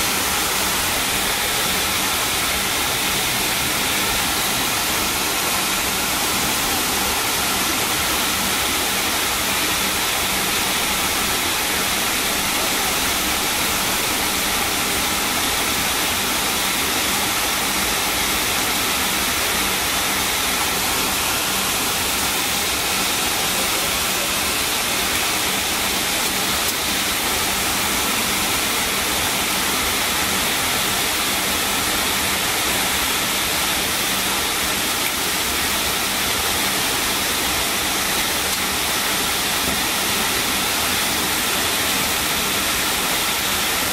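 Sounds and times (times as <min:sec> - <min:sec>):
aircraft engines idling: 0:00.0 - 0:18.0, 0:19.0 - 0:27.2.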